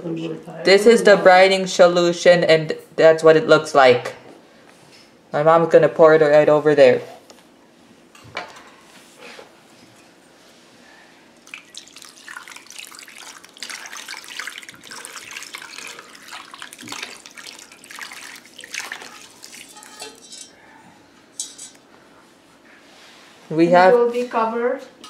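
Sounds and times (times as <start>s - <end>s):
liquid splashing and trickling: 11.4s - 20.5s.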